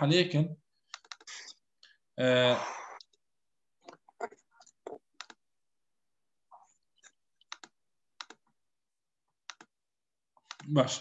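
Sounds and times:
computer mouse clicks: 0.9s - 1.4s, 4.6s - 5.4s, 7.4s - 8.4s, 9.4s - 9.7s, 10.4s - 10.7s.

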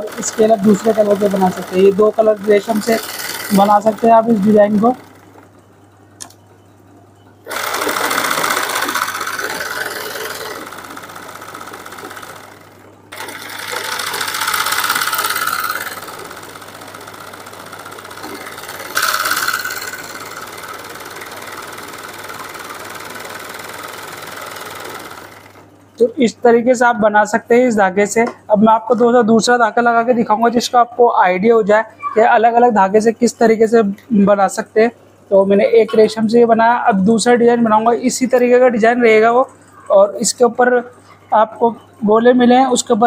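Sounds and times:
sewing machine stitching: 0.0s - 5.5s, 7.4s - 25.7s.

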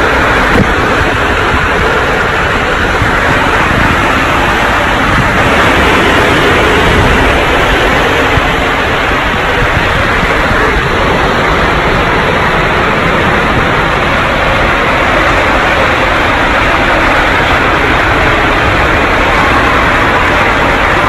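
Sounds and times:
water rushing through slide tube: 0.0s - 21.0s.

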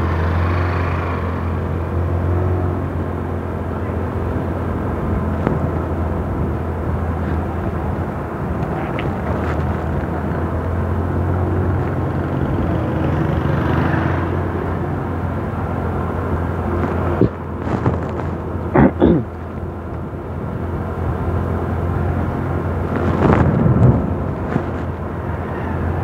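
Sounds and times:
road and wind rush: 0.0s - 26.0s
vehicle engine hum: 0.0s - 26.0s.

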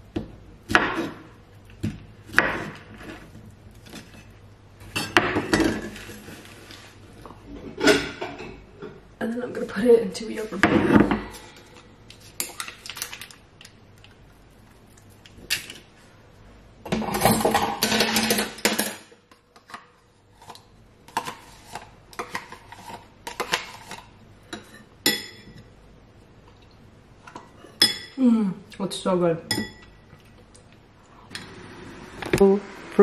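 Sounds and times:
rustling and scraping: 2.8s - 8.2s, 19.7s - 24.9s.

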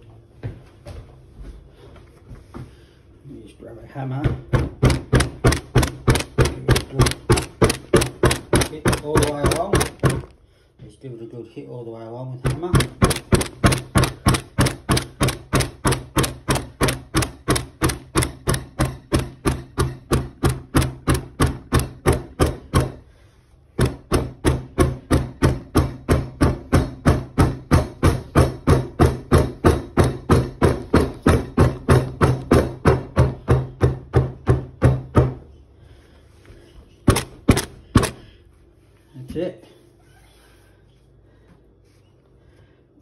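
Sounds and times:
hammer blows on rubber cushion: 4.4s - 10.4s, 12.4s - 23.1s, 23.8s - 35.5s, 37.1s - 38.3s.

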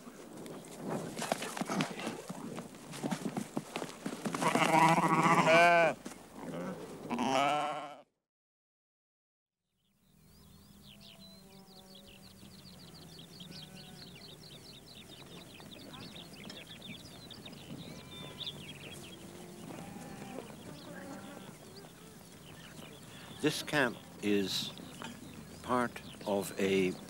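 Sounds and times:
livestock bleating: 4.4s - 8.1s, 10.9s - 14.3s, 17.8s - 24.2s
murmuring voices: 15.3s - 27.0s.

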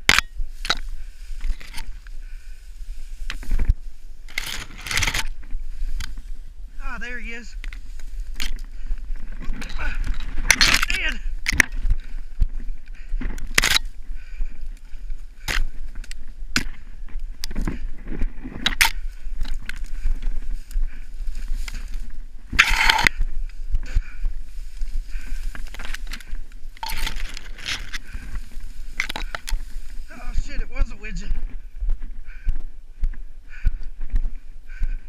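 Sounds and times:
camera handling rumble: 0.0s - 2.2s, 3.2s - 6.2s, 7.6s - 30.0s
dry grass rustling: 0.0s - 35.0s.

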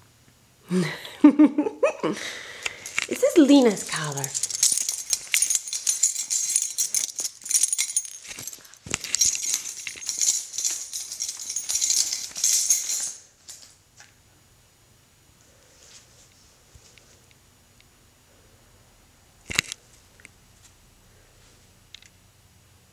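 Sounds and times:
dog collar jingling and rattling: 2.6s - 13.7s.

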